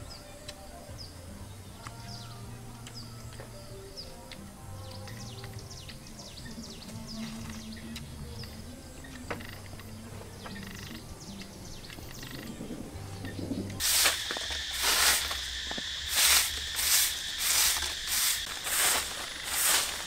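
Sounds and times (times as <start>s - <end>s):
faint bird chirps: 0.0s - 20.0s
steady high drone: 7.5s - 20.0s
broom sweeping dirt: 13.8s - 20.0s.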